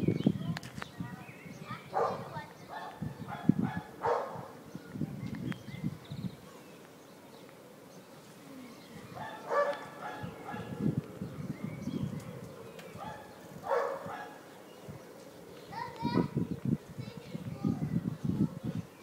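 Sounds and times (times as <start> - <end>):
faint voices: 0.4 - 19.0
dog barking: 1.9 - 4.6, 9.2 - 10.8, 13.0 - 14.4.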